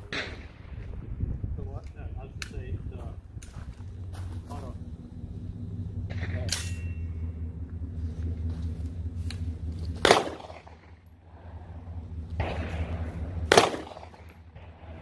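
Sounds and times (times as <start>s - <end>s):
low rumble: 0.0s - 15.0s
pistol shot with echo: 10.0s - 10.9s, 12.4s - 15.0s.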